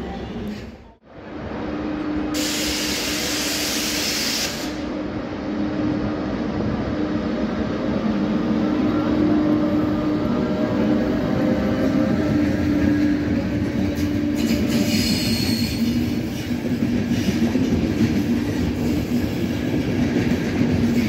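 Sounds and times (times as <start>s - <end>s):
electric train rolling: 0.0s - 21.0s
rail rumble: 0.0s - 21.0s
loud hiss: 2.3s - 5.0s.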